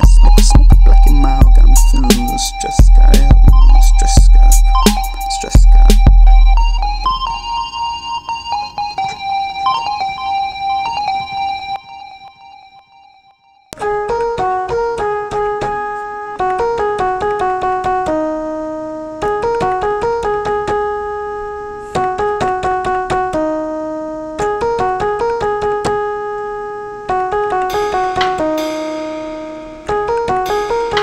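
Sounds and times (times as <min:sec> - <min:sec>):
keyboard playing quick melody: 0:00.0 - 0:12.8, 0:22.0 - 0:31.0.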